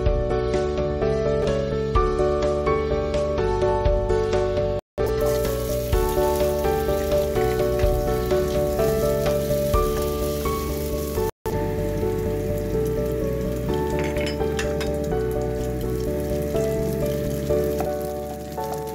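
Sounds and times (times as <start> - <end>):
background music: 0.0 - 18.9
garlic sizzling in hot oil: 5.0 - 18.9.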